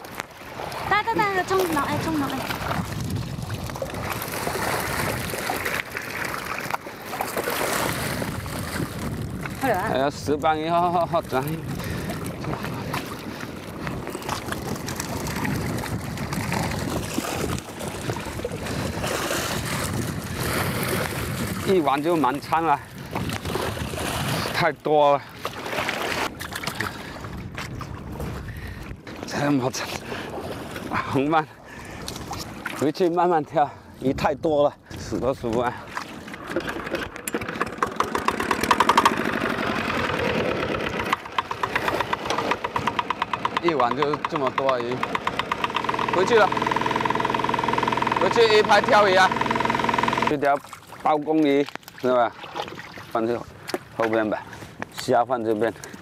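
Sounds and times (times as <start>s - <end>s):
water slapping wooden boat: 0.0s - 56.0s
wind buffeting microphone: 0.8s - 5.7s, 7.8s - 24.8s, 26.2s - 31.2s, 33.5s - 35.9s
boat engine knocking: 36.4s - 50.4s.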